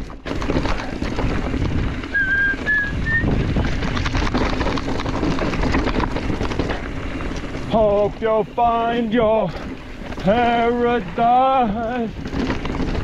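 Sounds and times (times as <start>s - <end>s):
wind on microphone: 0.9s - 7.1s
short whistle-like notes: 2.1s - 3.3s.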